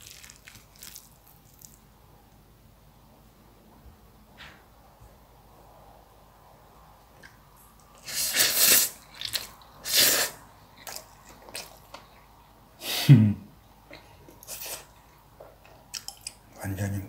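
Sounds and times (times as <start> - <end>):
chewing clicks: 15.7 - 16.4.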